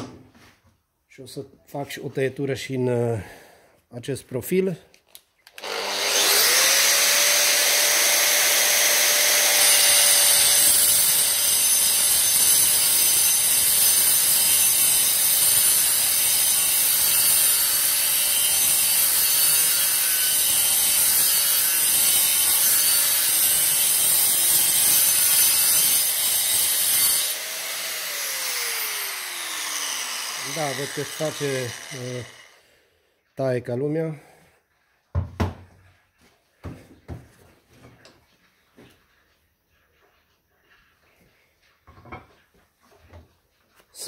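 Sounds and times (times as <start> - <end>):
angle grinder motor whining: 5.5 - 32.6
grinder disc cutting steel: 5.6 - 32.6.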